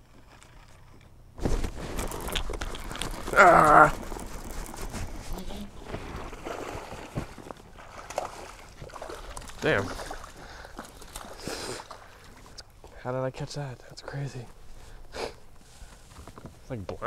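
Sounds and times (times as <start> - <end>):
rustling and clicking: 0.0 - 6.2
person shouting: 3.3 - 3.9.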